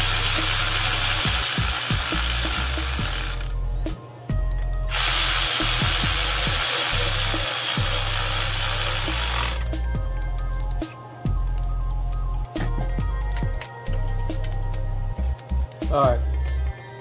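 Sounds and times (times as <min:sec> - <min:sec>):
power drill running: 0:00.0 - 0:03.6, 0:04.9 - 0:09.7
music with heavy bass and kick drums: 0:00.0 - 0:16.6.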